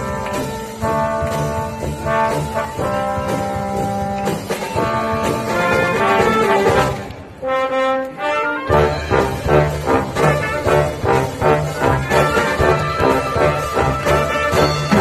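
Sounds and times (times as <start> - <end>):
brass band playing: 0.0 - 15.0.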